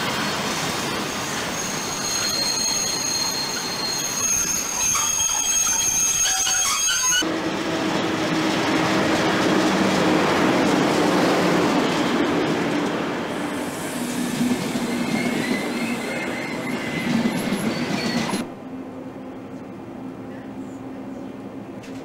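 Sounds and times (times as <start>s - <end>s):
train wheels rumbling on rails: 0.0s - 22.0s
wheel squeal: 0.2s - 7.2s, 14.6s - 18.5s.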